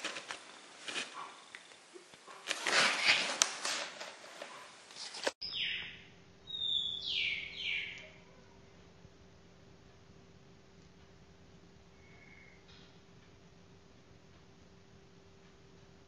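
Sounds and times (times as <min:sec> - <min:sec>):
cat rustling in cardboard box: 0:00.0 - 0:01.7, 0:02.3 - 0:05.4
faint steady hum: 0:00.0 - 0:16.0.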